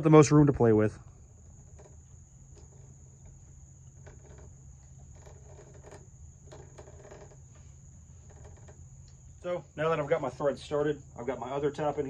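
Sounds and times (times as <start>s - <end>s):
hand tap scraping and creaking: 1.6s - 9.2s.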